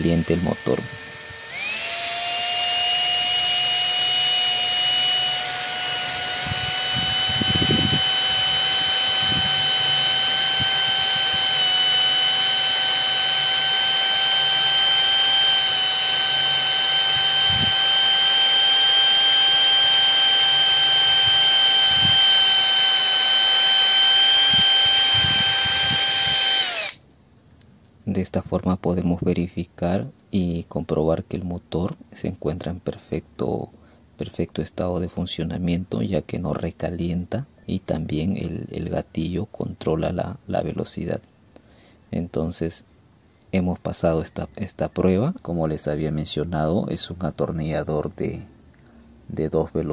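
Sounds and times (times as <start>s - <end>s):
electric motor high whine: 0.0s - 27.0s.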